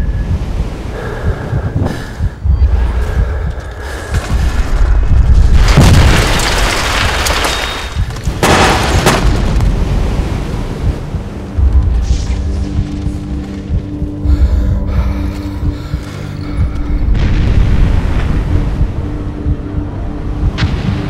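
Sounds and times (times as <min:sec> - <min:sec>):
deep rumble: 0:00.0 - 0:21.0
explosion blasts: 0:04.3 - 0:07.4.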